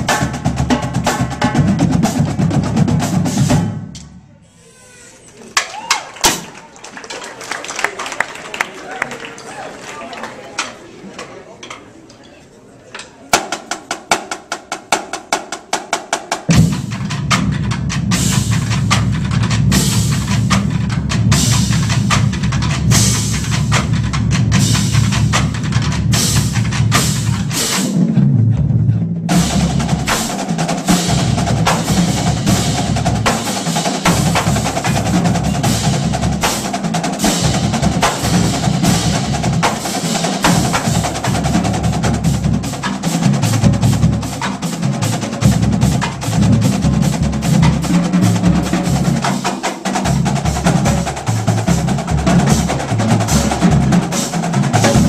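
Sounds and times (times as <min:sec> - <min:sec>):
drumline playing a cadence: 0:13.3 - 0:55.0.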